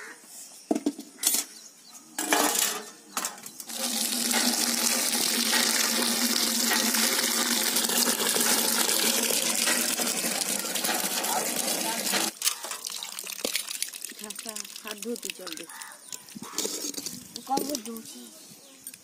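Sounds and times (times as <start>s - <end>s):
water splashing into metal pot: 2.2s - 16.2s.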